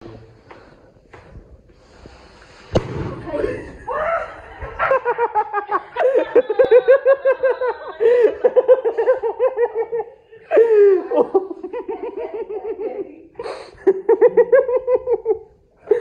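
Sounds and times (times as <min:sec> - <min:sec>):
woman laughing: 0:03.5 - 0:16.0.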